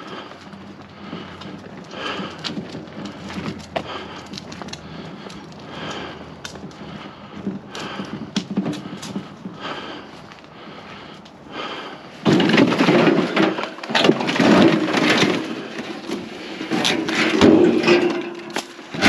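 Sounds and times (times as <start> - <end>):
wheelbarrow wheel rolling on asphalt: 0.0 - 19.0
wheelbarrow tub and handles rattling: 6.5 - 9.9, 11.6 - 19.0.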